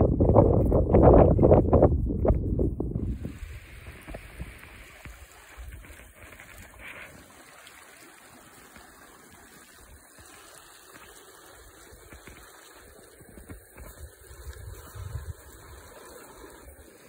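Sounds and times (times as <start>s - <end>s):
wind rumble on microphone: 0.0s - 7.0s, 13.1s - 15.9s
creek trickling: 3.0s - 17.0s.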